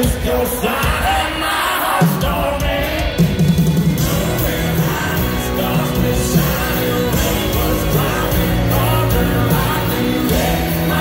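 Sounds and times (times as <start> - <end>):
live country band playing: 0.0 - 11.0
person singing: 4.0 - 11.0.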